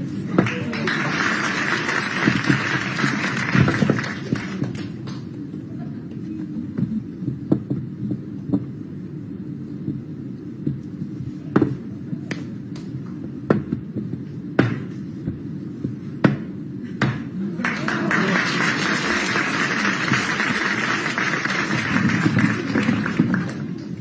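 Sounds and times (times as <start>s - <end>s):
low pulsing background: 0.0s - 24.0s
audience applause: 0.4s - 5.2s, 17.6s - 24.0s.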